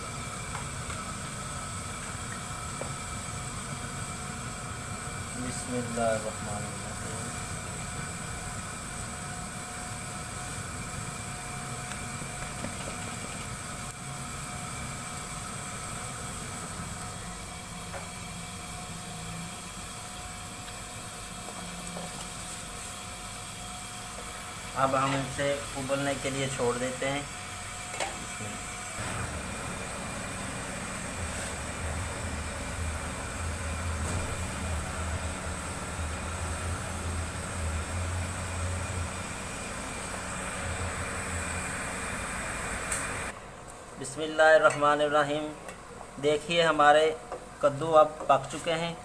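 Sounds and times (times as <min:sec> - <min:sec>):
gas flame rushing: 0:00.0 - 0:43.4
water boiling hard in a pot: 0:00.0 - 0:48.9
steady hissing noise: 0:00.0 - 0:49.0.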